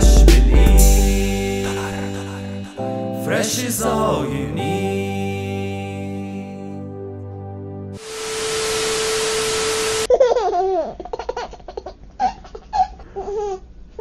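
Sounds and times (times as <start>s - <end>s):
held music chord: 0.0s - 10.1s
steady tone: 0.0s - 10.1s
static-like hiss: 8.0s - 10.1s
baby giggling and babbling: 10.1s - 13.6s.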